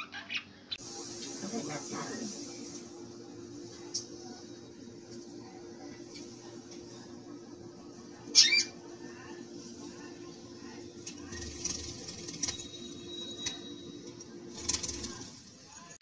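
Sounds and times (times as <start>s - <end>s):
wings fluttering: 11.0s - 15.5s.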